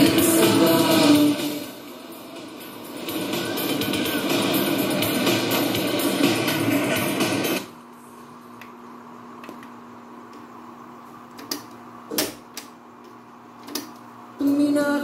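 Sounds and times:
loud music playing: 0.0 - 7.7
faint steady hum: 0.0 - 15.0.

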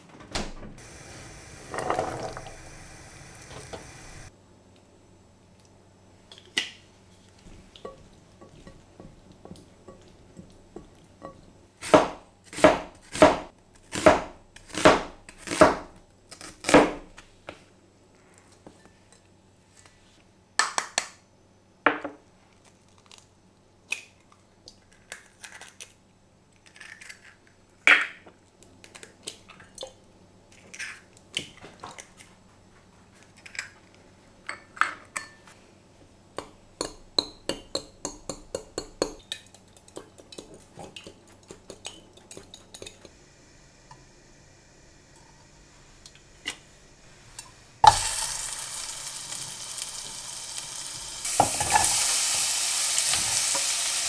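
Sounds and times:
pan sizzling: 0.8 - 4.3, 42.8 - 54.0.

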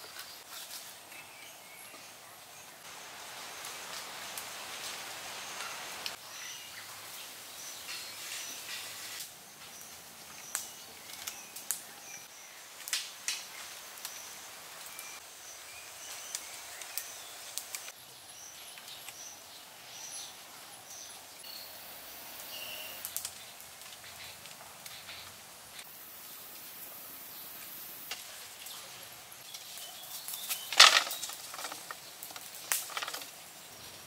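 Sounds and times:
insect-like hiss: 2.8 - 18.6, 21.0 - 34.0
wooden sticks clicking: 30.5 - 33.3.

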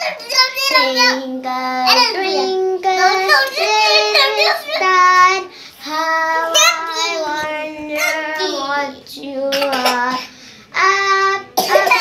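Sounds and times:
toddler singing: 0.0 - 12.0.

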